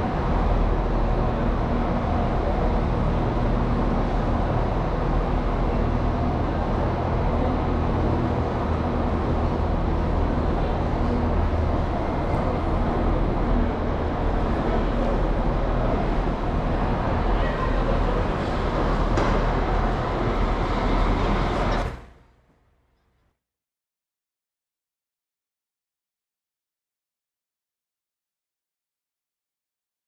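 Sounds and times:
diesel train engine drone: 0.0 - 22.8.

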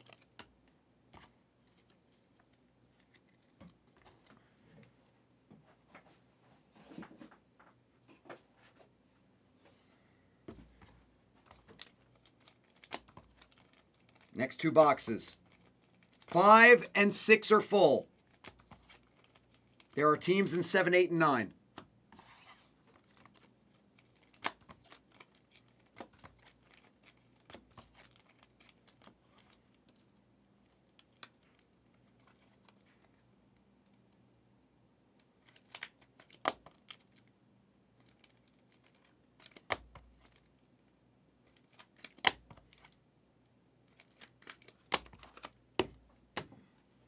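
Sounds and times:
wrapping torn and crinkled: 11.4 - 14.4, 15.3 - 16.4, 18.1 - 20.0, 22.9 - 30.0, 35.4 - 37.3, 38.0 - 43.0, 43.8 - 45.6.

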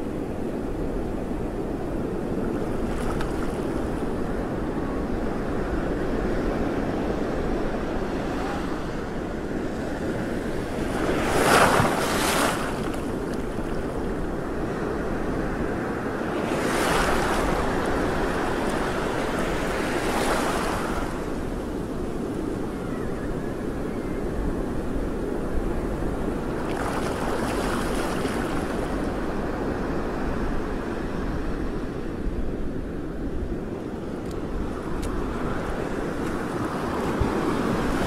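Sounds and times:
wind noise on microphone: 0.0 - 38.0
water splashing surges: 10.7 - 14.2, 26.6 - 29.0.

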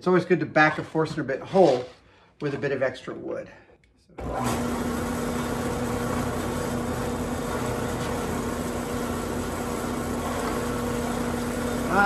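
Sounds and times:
drill press motor humming: 4.2 - 12.0.

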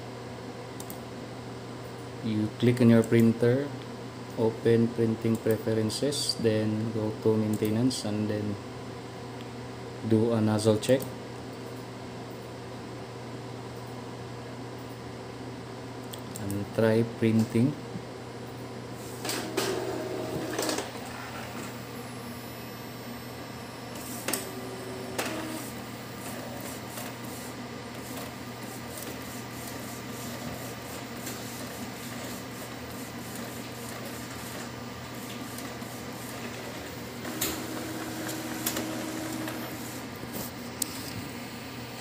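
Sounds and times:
inkjet printer motors whirring: 19.0 - 41.3.

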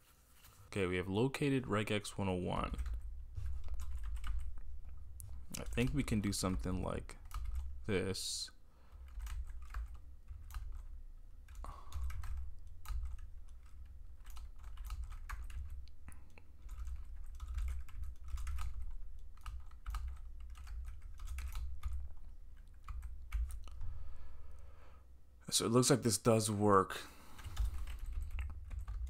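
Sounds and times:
typing on a keyboard: 2.6 - 7.8, 8.9 - 23.9, 27.4 - 29.0.

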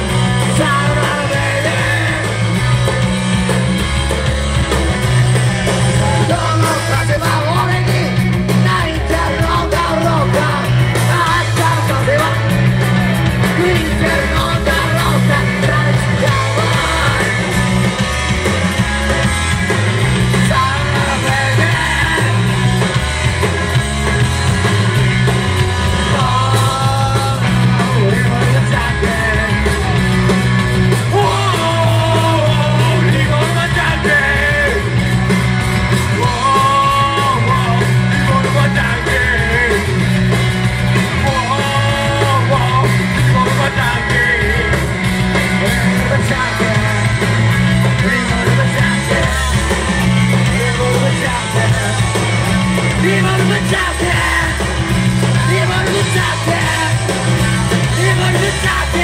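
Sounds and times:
man singing: 0.0 - 2.9, 5.4 - 18.0, 20.1 - 22.9, 25.8 - 30.3, 31.0 - 35.0, 36.0 - 40.4, 41.0 - 59.0
rock band playing live: 0.0 - 59.0.

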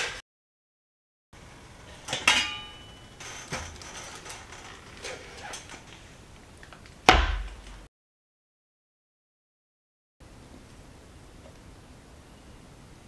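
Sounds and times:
metallic pot lid clink: 2.1 - 3.1.

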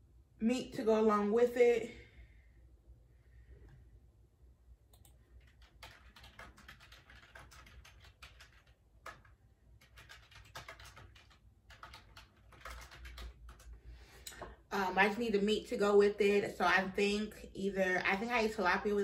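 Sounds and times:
typing on computer keyboard: 4.9 - 13.8.

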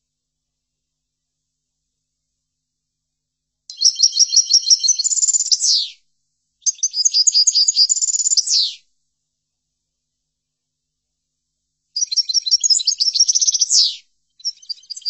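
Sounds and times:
goldfinch singing twittering trill: 3.7 - 5.9, 6.6 - 8.8, 12.0 - 15.0.

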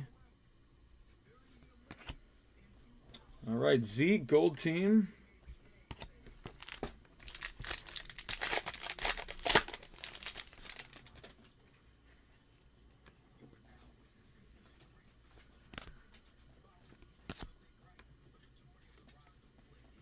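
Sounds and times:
foil wrapper crinkling and tearing: 6.5 - 11.4.

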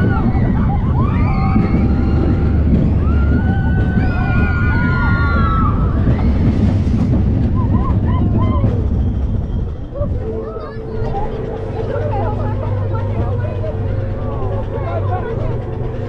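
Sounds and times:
riders screaming: 0.0 - 6.6
roller coaster train rumbling: 0.0 - 16.0.

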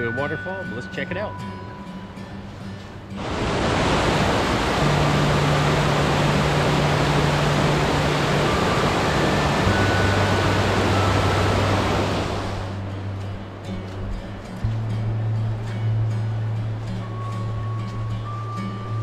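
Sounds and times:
low background music: 0.0 - 19.0
water rushing over rocks: 3.2 - 12.8.

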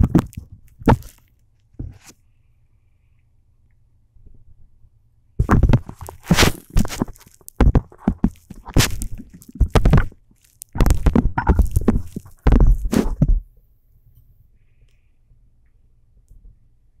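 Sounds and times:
phone handling thumps and scrapes: 1.8 - 2.2, 5.4 - 10.2, 10.8 - 13.4.

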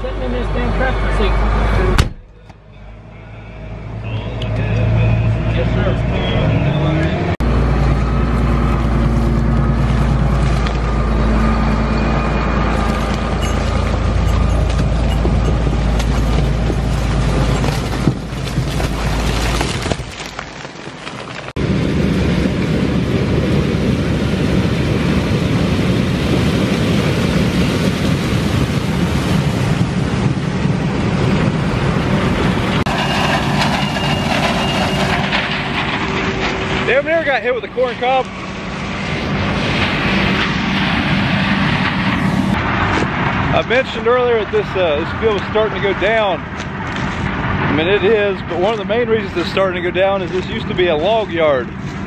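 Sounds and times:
combine harvester rumbling: 0.0 - 52.0
tractor engine running: 0.1 - 19.6, 28.7 - 43.5.

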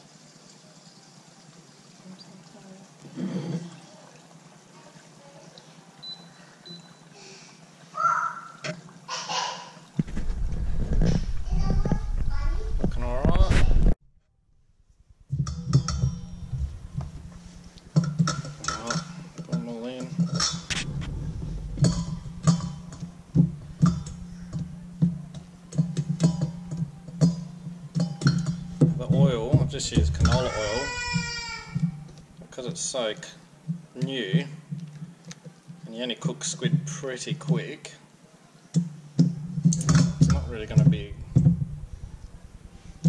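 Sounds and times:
food sizzling in hot oil: 0.0 - 9.1.

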